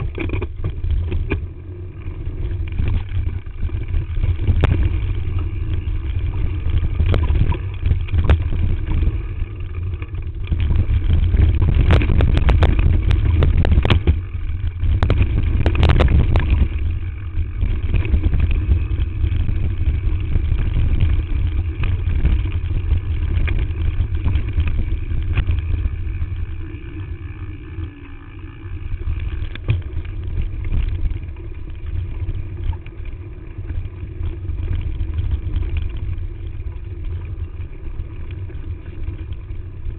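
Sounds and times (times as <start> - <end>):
wind buffeting microphone: 0.0 - 28.0
bike tyres and frame rattling: 0.0 - 39.9.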